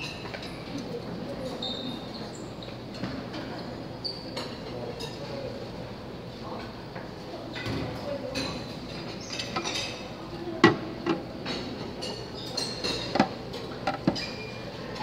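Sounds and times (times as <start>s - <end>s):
dishes and utensils clinking: 0.0s - 0.8s, 7.5s - 15.0s.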